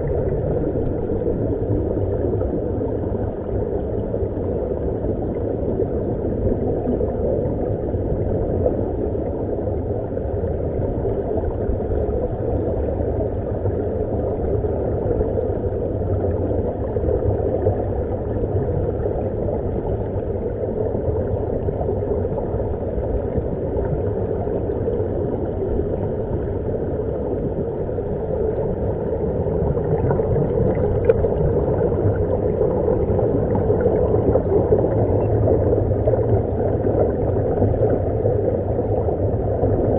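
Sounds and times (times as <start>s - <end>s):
air bubbling underwater: 20.6s - 39.9s.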